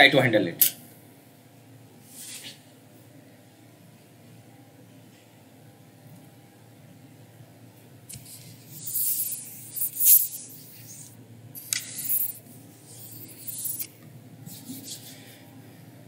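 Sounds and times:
faint steady hum: 0.0s - 16.0s
hissing rustling noise: 8.2s - 13.9s.

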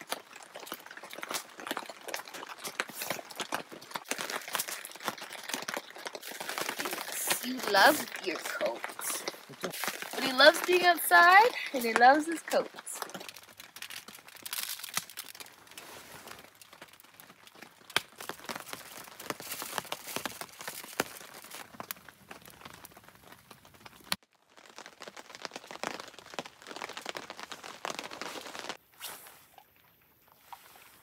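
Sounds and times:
aluminium foil crinkling: 0.0s - 28.8s
wood campfire crackling: 0.0s - 28.8s.

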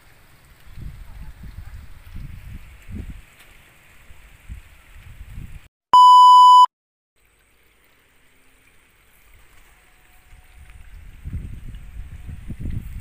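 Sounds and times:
loud electronic beep: 6.0s - 6.7s.

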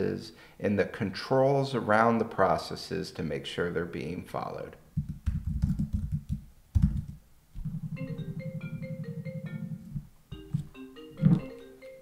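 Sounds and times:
marimba phone ringtone: 7.7s - 12.0s.

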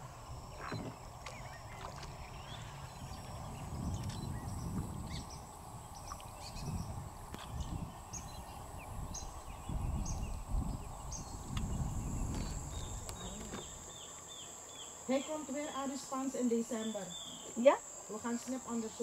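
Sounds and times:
low rumbling: 0.0s - 13.9s
high insect-like whine: 0.0s - 19.0s.

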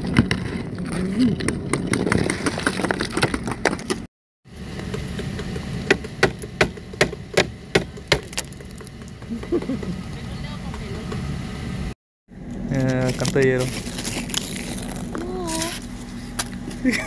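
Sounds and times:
ice scraper on windshield: 13.2s - 15.9s.

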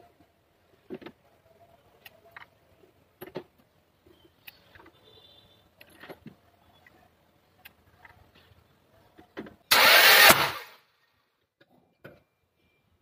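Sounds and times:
engine starter cranking whirr: 9.7s - 10.8s.

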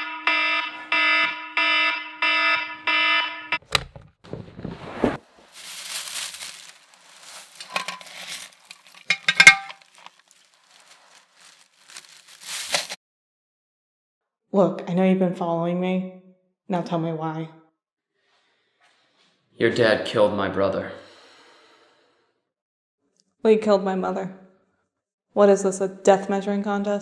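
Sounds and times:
electronic alarm beeping: 0.0s - 3.6s
rustles and knocks: 3.7s - 13.0s.

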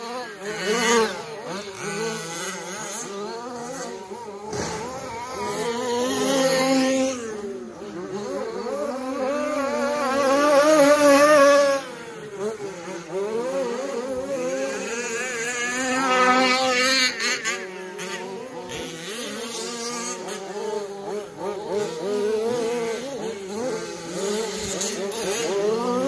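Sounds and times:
rc truck motors whining: 0.0s - 26.0s.

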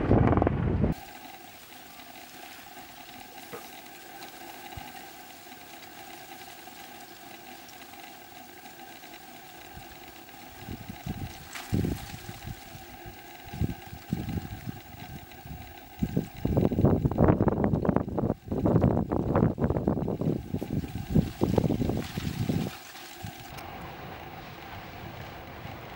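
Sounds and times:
wind buffeting microphone: 0.0s - 1.1s, 9.7s - 25.9s
crust crackling: 0.9s - 17.1s, 20.1s - 23.7s
lava flow hissing: 0.9s - 24.2s.

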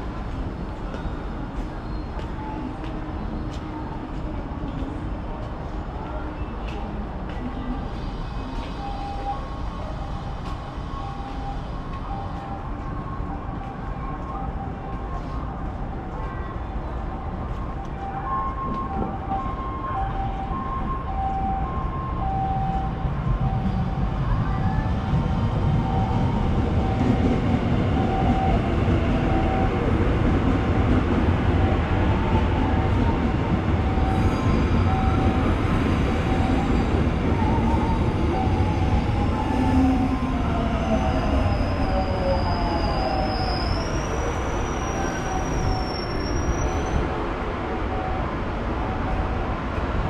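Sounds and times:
high wheel squeal: 40.8s - 47.0s.

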